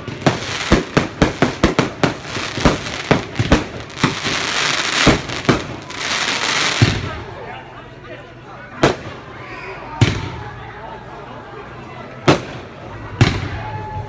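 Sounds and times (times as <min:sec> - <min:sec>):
fireworks bangs and crackle: 0:00.0 - 0:07.2, 0:12.3 - 0:13.7.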